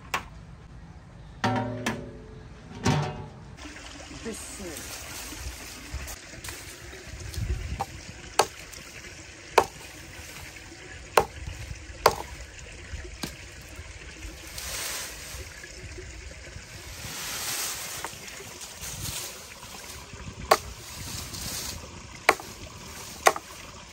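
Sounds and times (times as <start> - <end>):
dry leafy brush rustling: 4.2 - 9.0, 9.6 - 12.4, 14.1 - 23.9
axe chopping branches: 7.8 - 8.8, 9.6 - 10.4, 11.2 - 11.4, 12.0 - 12.3, 17.4 - 23.7.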